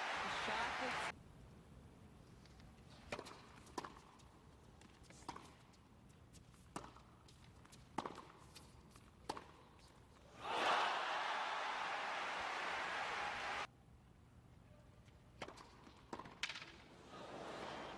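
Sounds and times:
crowd noise: 0:00.0 - 0:01.1, 0:10.4 - 0:13.7
racket hitting tennis ball: 0:03.1 - 0:04.2, 0:06.6 - 0:09.7.

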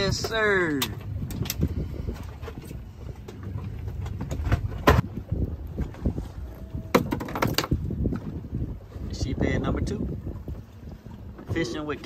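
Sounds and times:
wind and water rumble: 0:00.0 - 0:12.0.

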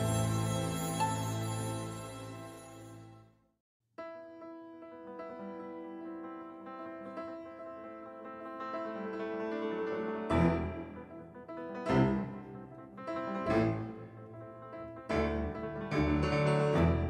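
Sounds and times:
slow piano chords: 0:04.2 - 0:17.0.

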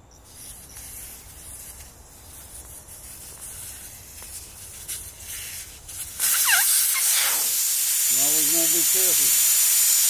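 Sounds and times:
air hissing from tire valve: 0:03.0 - 0:10.0.

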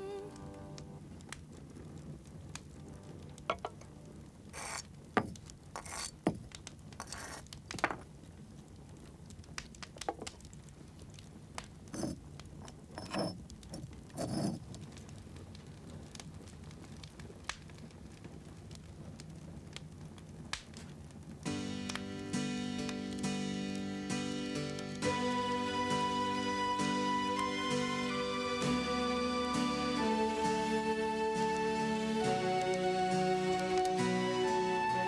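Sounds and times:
bricks clinking and scraping: 0:04.6 - 0:08.1, 0:11.9 - 0:14.8.

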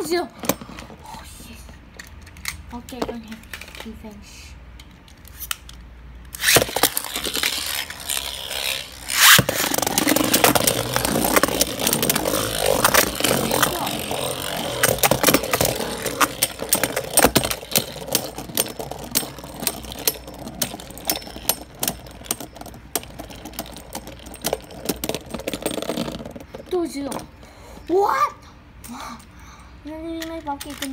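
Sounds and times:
spinning tops whirring and scraping: 0:05.1 - 0:27.4
spinning tops clacking together: 0:06.3 - 0:27.1.

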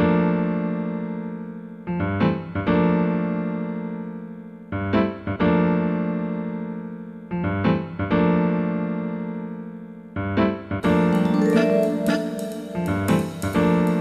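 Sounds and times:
piano chords ringing: 0:10.8 - 0:14.0.

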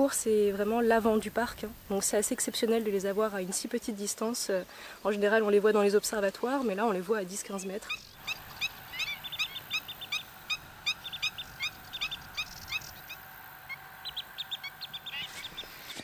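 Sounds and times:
birds calling in sharp high notes: 0:07.6 - 0:16.0.

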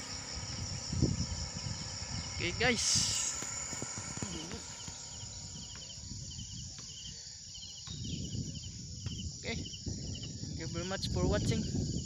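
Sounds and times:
low rumble: 0:00.0 - 0:06.8
insect chirping trills: 0:00.0 - 0:12.0
insects buzzing: 0:00.0 - 0:12.0.

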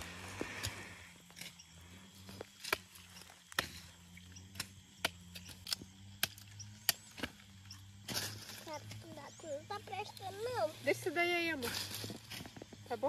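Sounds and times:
dry plant stems snapping: 0:04.4 - 0:09.0.

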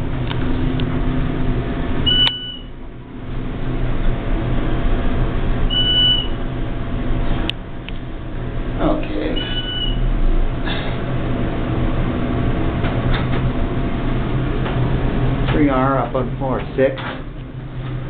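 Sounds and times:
elevator hum and rumble: 0:00.0 - 0:18.0
short high electronic beep: 0:02.1 - 0:02.7, 0:05.7 - 0:06.4, 0:09.4 - 0:10.0.

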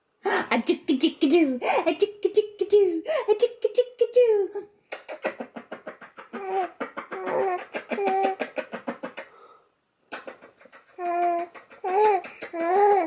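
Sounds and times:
baby giggling: 0:04.9 - 0:09.3, 0:10.1 - 0:13.0.

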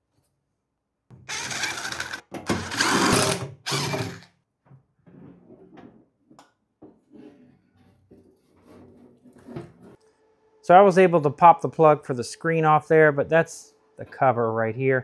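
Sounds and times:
cordless power drill running: 0:01.3 - 0:04.3.

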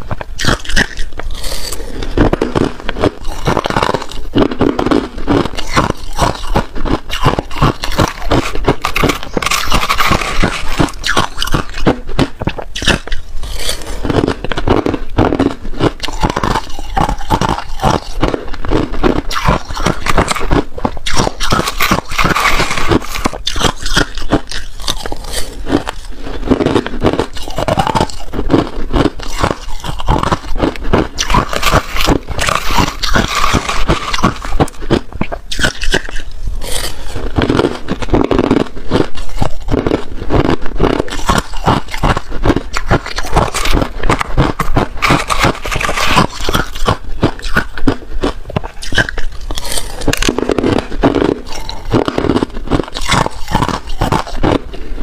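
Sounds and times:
crunching ice being chewed: 0:00.0 - 0:55.0
metal spoon scraping ice: 0:19.2 - 0:30.6, 0:39.0 - 0:47.8.

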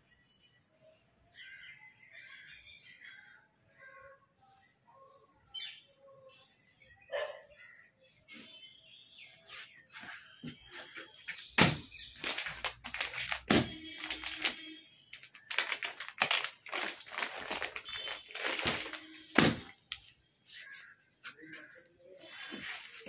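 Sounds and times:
plastic packaging crinkling: 0:11.3 - 0:20.9.

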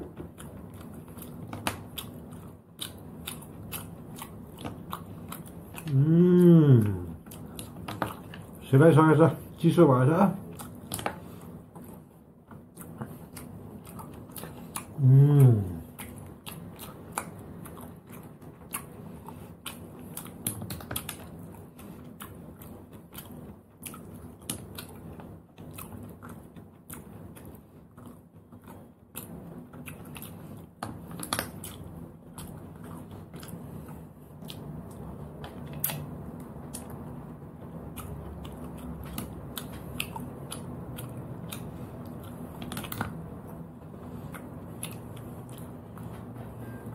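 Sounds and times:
chewing and mouth sounds: 0:00.0 - 0:46.9.

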